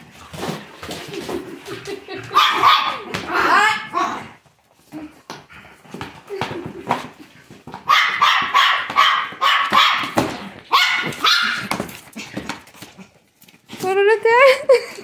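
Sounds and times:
dog barking excitedly: 2.3 - 4.2, 7.8 - 11.9.

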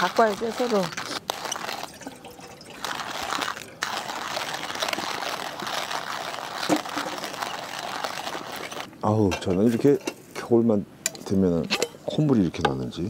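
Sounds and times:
water pouring from container: 0.0 - 8.9.

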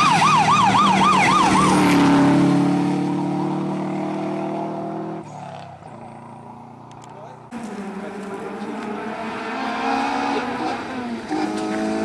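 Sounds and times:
siren-like wail: 0.0 - 2.5
rally car engine passing: 0.1 - 12.0.

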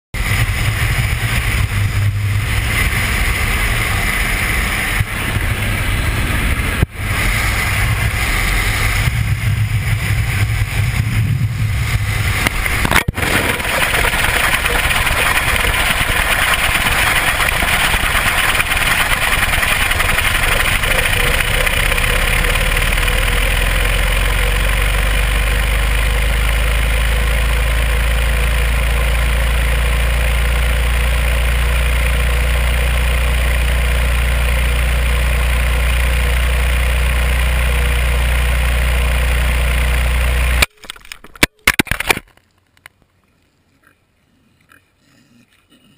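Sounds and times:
deep steady rumble: 0.2 - 40.7
wind rushing: 0.4 - 22.6.

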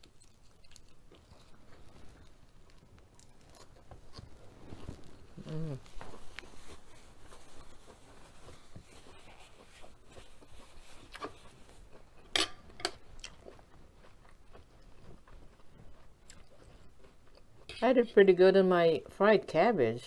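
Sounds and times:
soft chewing: 0.0 - 18.1
metal fork clinking on pan: 12.3 - 13.0.

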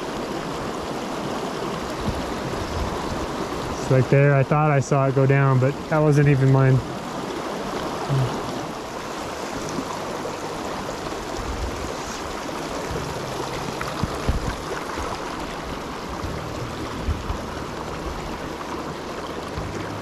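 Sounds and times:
stream water rushing: 0.0 - 20.0
short low thumps: 16.2 - 18.2.

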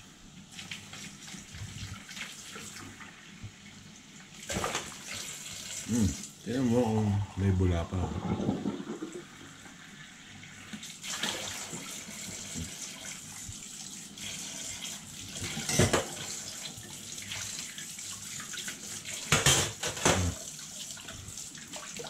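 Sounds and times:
dishes knocking in sink: 15.4 - 16.2, 19.3 - 20.4.

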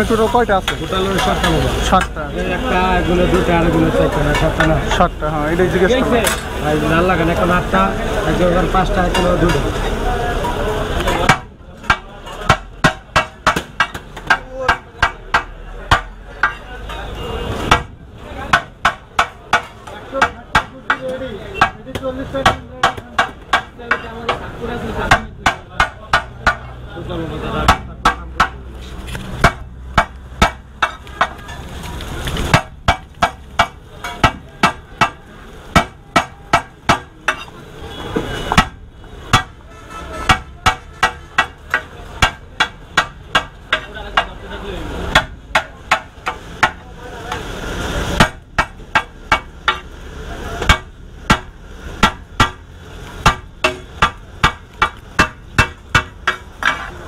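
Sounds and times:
cleaver chopping on steel griddle: 11.1 - 17.0, 17.7 - 26.8, 27.6 - 28.6, 29.3 - 31.4, 32.5 - 37.5, 38.4 - 39.6, 40.2 - 44.4, 45.1 - 47.5, 48.2 - 49.9, 50.6 - 52.6, 53.2 - 57.0.

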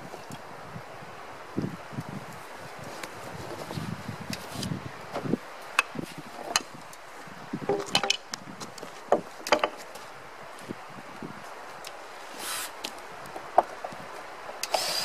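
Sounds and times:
sharp knocks and clicks: 9.1 - 9.9
brushing sawdust off log: 12.2 - 12.9.

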